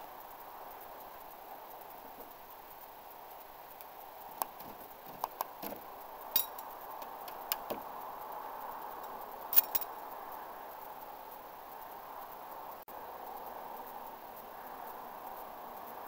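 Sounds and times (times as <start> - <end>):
metal knives clinking: 6.4 - 6.6, 9.5 - 9.9.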